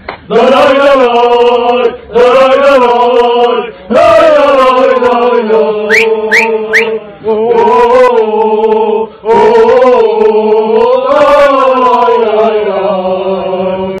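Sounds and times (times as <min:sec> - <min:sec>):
men chanting in unison: 0:00.2 - 0:14.0
rising whistle-like notes: 0:05.8 - 0:07.0.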